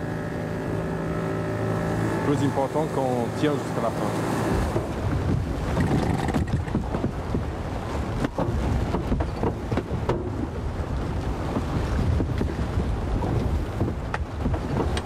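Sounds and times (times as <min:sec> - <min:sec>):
rough water churning: 0:00.0 - 0:15.0
wind buffeting microphone: 0:00.0 - 0:15.0
knocks against hull: 0:04.6 - 0:07.5, 0:08.1 - 0:10.6, 0:11.4 - 0:15.0.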